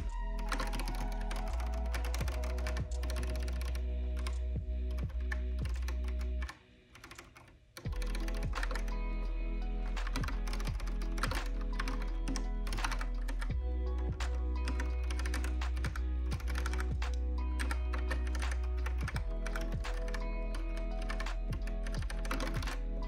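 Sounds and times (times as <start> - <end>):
lo-fi music with bass line: 0.0 - 6.5, 7.9 - 23.0
keyboard key clicks: 10.0 - 13.5.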